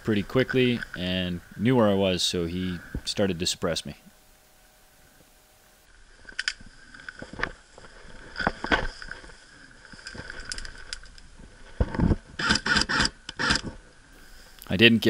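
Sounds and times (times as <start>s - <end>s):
dry grass rustling: 5.9s - 12.4s.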